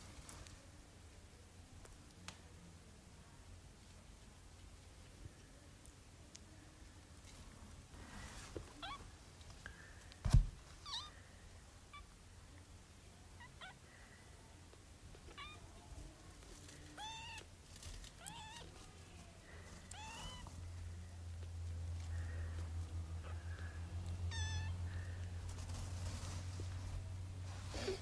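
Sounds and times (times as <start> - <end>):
low steady hum: 0.0 - 28.0
kittens mewing: 23.2 - 25.3.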